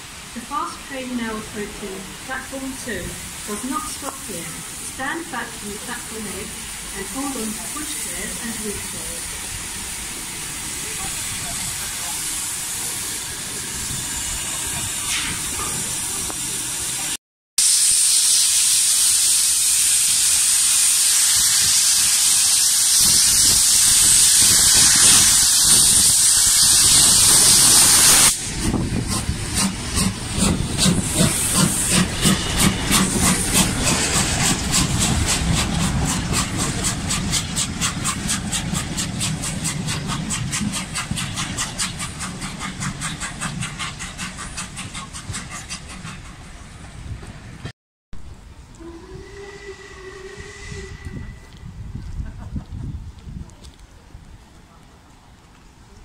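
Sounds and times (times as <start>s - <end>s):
steam locomotive hissing: 0.0s - 47.7s, 48.7s - 52.8s
locomotive exhaust beats: 26.8s - 53.8s.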